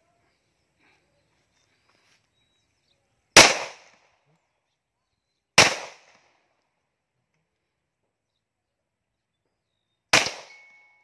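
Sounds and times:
pistol shots with echo: 3.4s - 4.0s, 5.6s - 6.3s, 10.1s - 11.0s.

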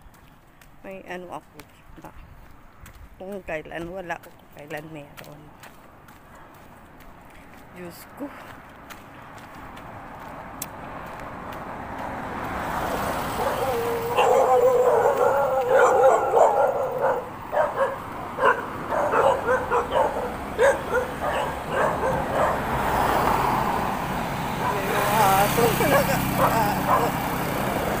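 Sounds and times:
dog barking: 13.3s - 22.9s, 24.6s - 25.0s, 25.7s - 27.2s.

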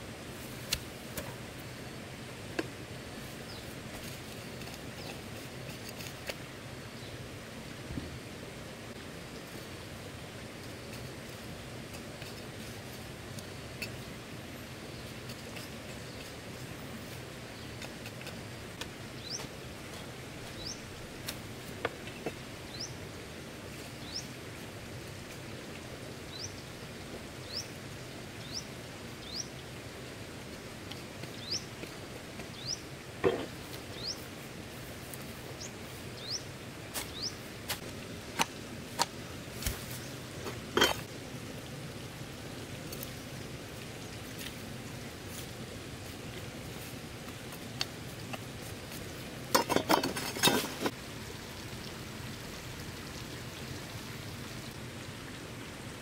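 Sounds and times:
outdoor background noise: 0.0s - 56.0s
small bird chirping: 31.3s - 31.7s, 37.1s - 37.5s
utensils and dishes clinking: 40.8s - 41.1s, 49.5s - 50.9s.

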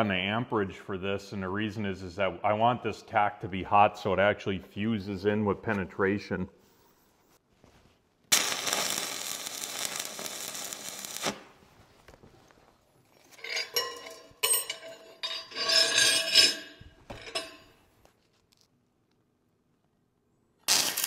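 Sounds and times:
welding arc burning: 8.3s - 11.6s, 20.6s - 21.0s.

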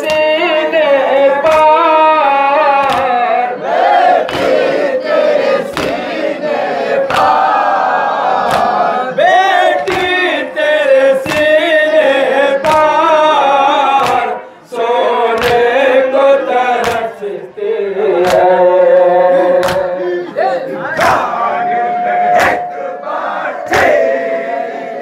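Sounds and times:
slaps of chest-beating: 0.0s - 0.4s, 1.4s - 1.9s, 2.7s - 3.3s, 4.2s - 4.8s, 5.6s - 6.2s, 7.0s - 7.5s, 8.4s - 8.9s, 9.8s - 10.4s, 11.2s - 11.8s, 12.6s - 13.0s, 13.9s - 14.4s, 15.3s - 15.8s, 16.8s - 17.2s, 18.2s - 18.6s, 19.6s - 20.0s
man chanting into a microphone: 0.0s - 3.6s, 9.0s - 21.0s
men's voices chanting: 0.0s - 25.0s.

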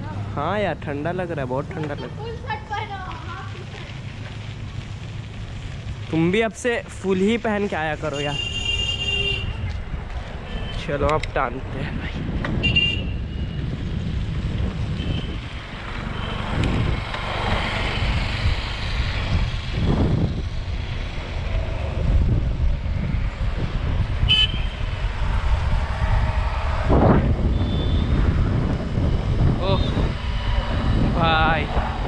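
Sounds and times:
passing traffic: 0.0s - 32.0s
bicycle tyre rumble on road: 1.1s - 32.0s
wind rushing over microphone: 6.1s - 32.0s
vehicle horn beeps: 8.1s - 9.7s, 12.6s - 13.5s, 24.3s - 24.8s, 27.5s - 28.2s.

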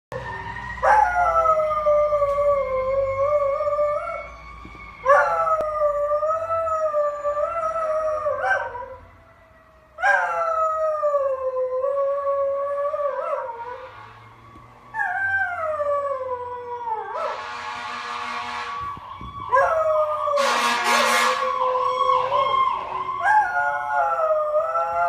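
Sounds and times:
fire truck siren: 0.1s - 25.0s
dog howling: 5.1s - 9.0s, 19.5s - 20.4s, 21.4s - 25.0s.

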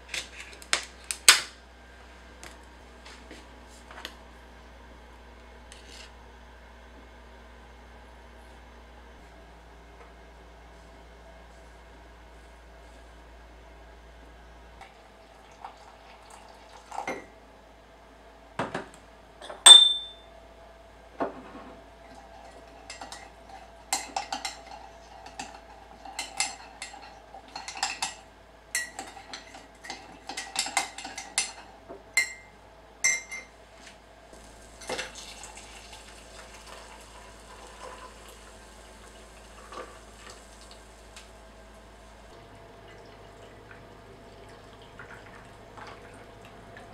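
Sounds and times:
teaspoon clinking against mug: 19.6s - 20.2s, 33.1s - 33.5s.

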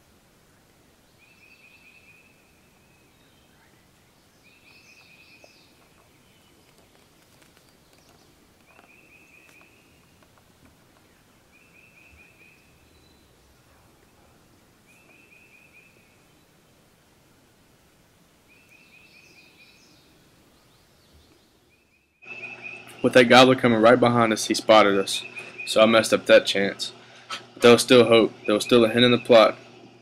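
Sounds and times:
faint woodland ambience: 0.0s - 30.0s
bird chirping: 1.0s - 16.9s, 18.4s - 23.3s, 24.6s - 26.2s, 28.3s - 29.5s
songbird trilling: 1.1s - 7.0s, 7.6s - 10.2s, 11.0s - 13.6s, 14.9s - 16.5s, 18.5s - 23.2s, 25.0s - 26.2s, 28.3s - 29.5s.

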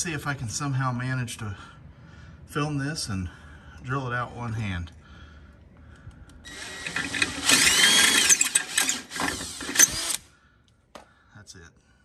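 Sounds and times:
cordless drill whining through metal: 6.5s - 10.3s.

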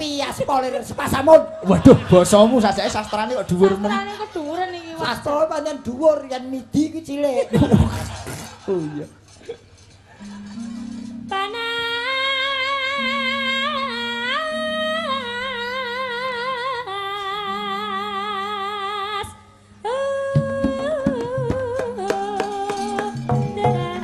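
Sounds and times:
low steady instrumental notes: 10.1s - 24.0s
woman singing with vibrato: 10.4s - 24.0s
hand drum strokes: 20.4s - 24.0s.

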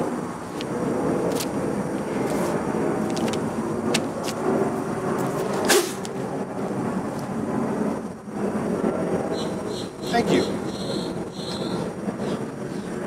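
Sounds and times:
distant background rumble: 0.0s - 13.0s
paper rustling: 2.2s - 4.4s.

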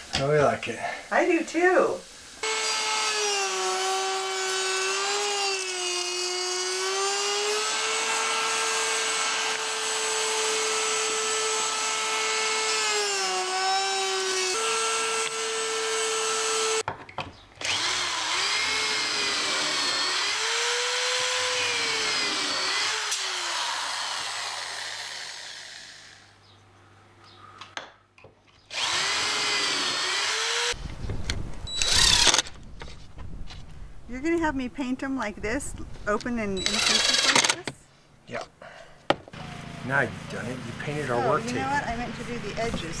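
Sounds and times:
power tool motor whining: 2.4s - 16.8s, 17.6s - 26.4s, 28.7s - 30.8s, 31.6s - 32.6s, 36.6s - 37.8s.

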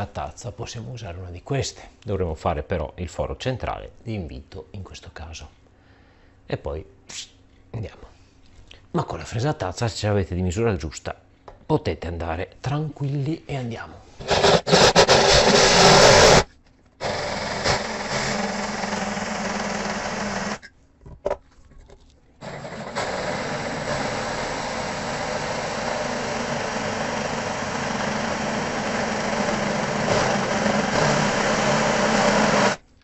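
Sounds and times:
drill with hole saw cutting: 14.2s - 20.6s, 22.4s - 32.8s.

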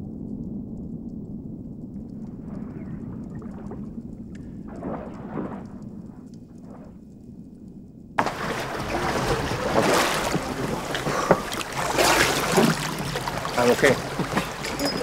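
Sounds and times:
muffled underwater rumble: 0.0s - 15.0s
wind noise on microphone: 0.0s - 15.0s
water slapping and splashing: 2.2s - 7.0s, 8.2s - 15.0s.

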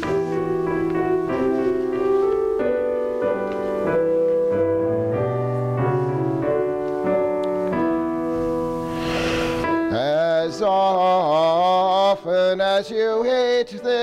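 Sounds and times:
keyboard playing slow chords: 0.0s - 11.0s.

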